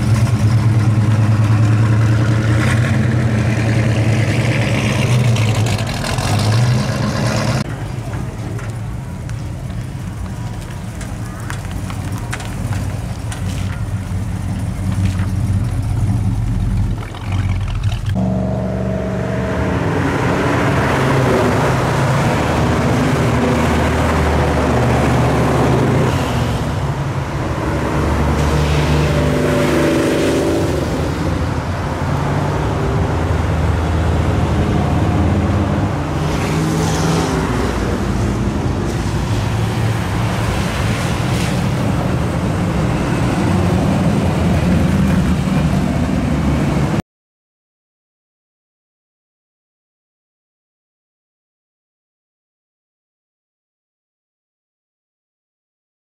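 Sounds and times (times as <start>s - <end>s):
tyre noise on wet road: 0.0s - 18.7s, 19.6s - 47.0s
cars driving past: 0.0s - 47.0s
car engine idling: 7.7s - 19.6s.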